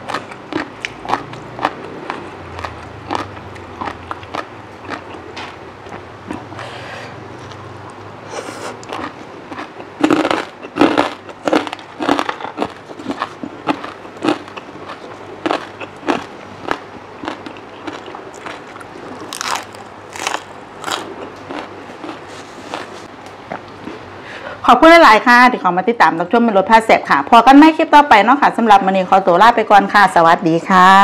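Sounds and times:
crisp crunching and chewing: 0.0s - 6.5s, 8.7s - 23.1s.

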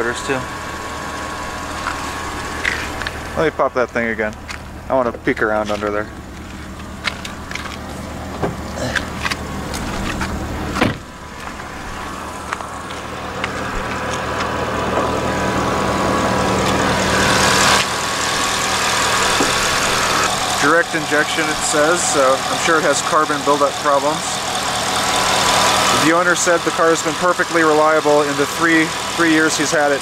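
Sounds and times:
car engine idling: 0.0s - 30.0s
hood clicks: 1.8s - 3.2s, 5.5s - 15.2s.

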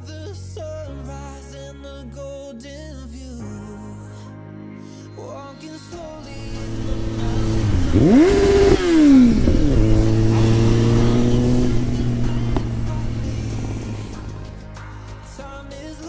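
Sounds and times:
motorcycle engine revving: 6.3s - 14.5s.

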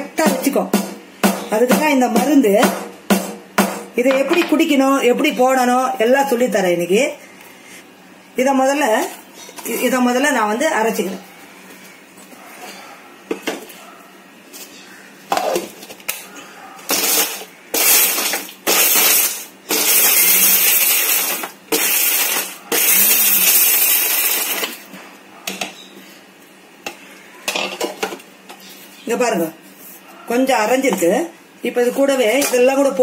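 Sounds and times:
grinder jar clicks and knocks: 4.0s - 4.6s
mixer grinder grinding spices: 16.9s - 24.8s.

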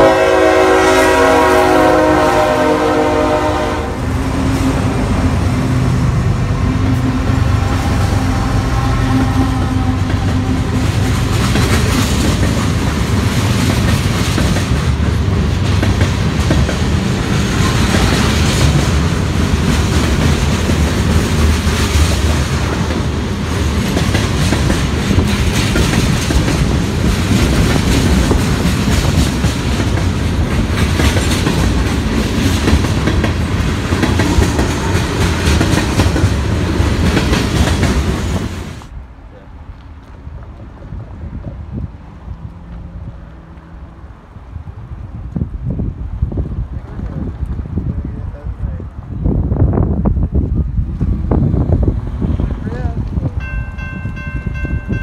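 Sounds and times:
train air horn chord: 0.0s - 4.0s
train wheels clacking on rails: 8.6s - 38.9s, 53.4s - 55.0s.

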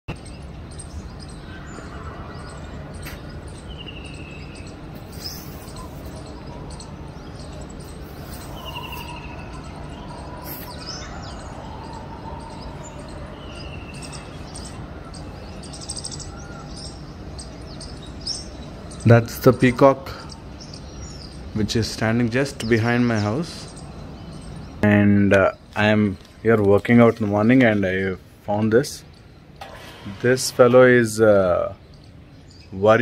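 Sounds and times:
low background hum: 0.1s - 33.0s
peacock calling: 1.0s - 21.5s.

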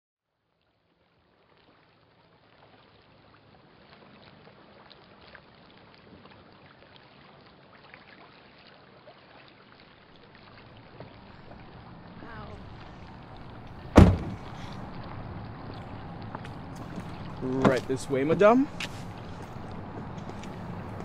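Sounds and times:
wind: 0.2s - 21.0s
water lapping: 0.9s - 21.0s.

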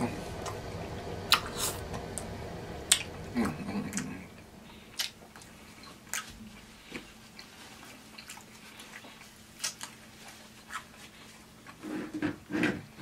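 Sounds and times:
chewing fried chicken: 4.9s - 11.8s.

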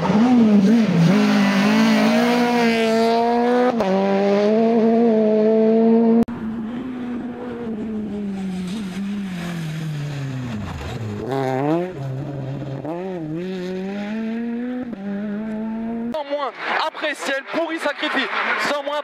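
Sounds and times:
rally car engine passing: 0.0s - 19.0s.

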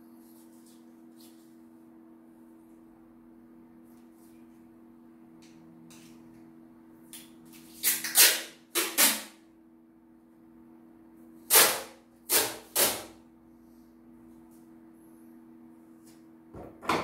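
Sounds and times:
packing tape ripping: 7.6s - 9.4s, 11.5s - 13.0s.

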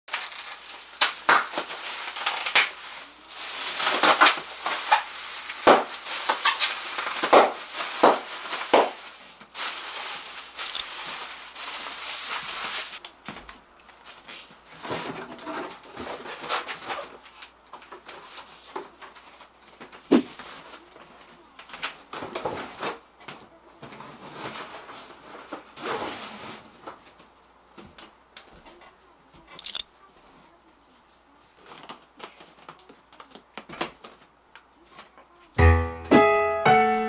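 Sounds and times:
plastic bags rustling: 0.1s - 20.9s.

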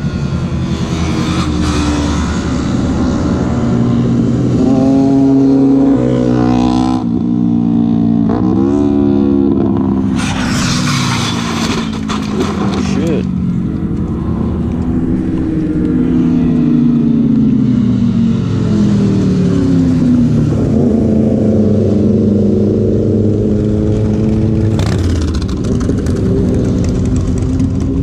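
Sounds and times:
motorcycle engines revving: 0.0s - 28.0s
motorcycle crashing and sliding: 10.1s - 13.2s.

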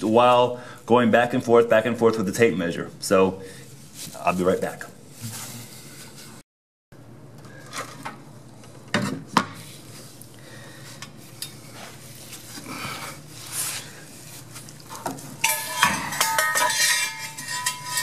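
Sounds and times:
metal clattering: 15.4s - 18.0s
metal parts clinking: 15.4s - 18.0s.

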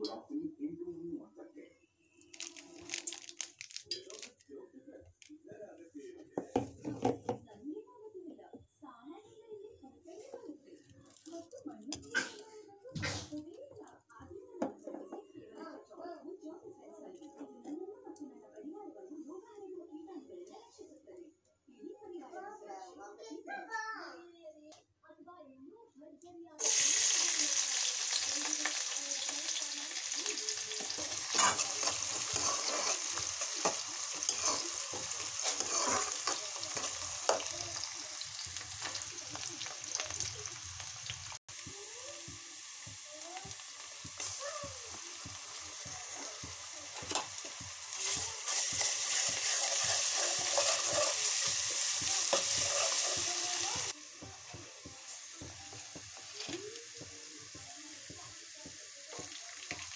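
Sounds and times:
onions sizzling in oil: 2.3s - 4.3s, 26.6s - 59.9s
stirring scrapes and clinks: 30.8s - 37.8s, 46.2s - 53.9s.

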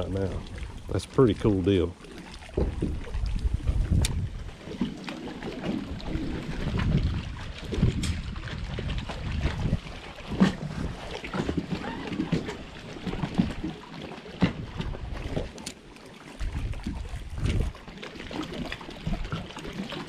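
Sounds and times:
wind buffeting microphone: 2.4s - 4.6s, 5.8s - 13.6s, 16.4s - 17.8s.

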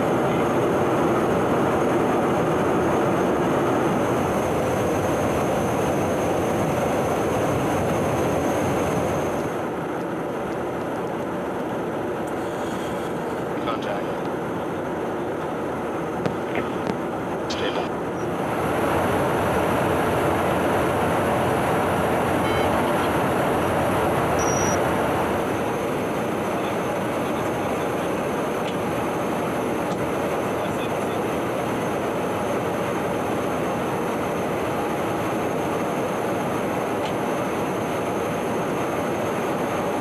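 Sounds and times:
aircraft cabin airflow and engine: 0.0s - 40.0s
faint high whine: 11.8s - 40.0s.

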